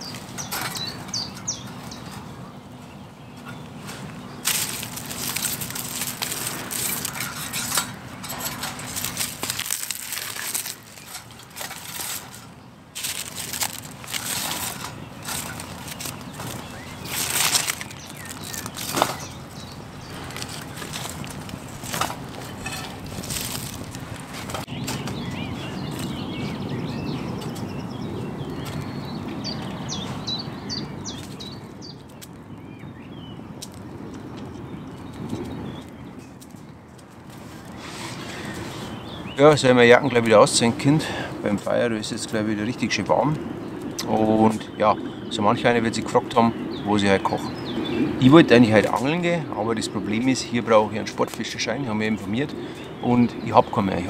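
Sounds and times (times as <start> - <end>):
birds chirping: 0.0 - 54.0
dry reeds crunching and snapping: 3.4 - 25.2, 32.0 - 32.4, 33.6 - 38.7, 43.8 - 44.6.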